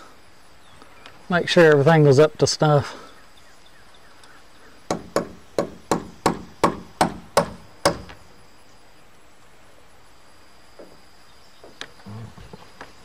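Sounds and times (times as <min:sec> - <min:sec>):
hammer striking wood: 0:04.9 - 0:08.2.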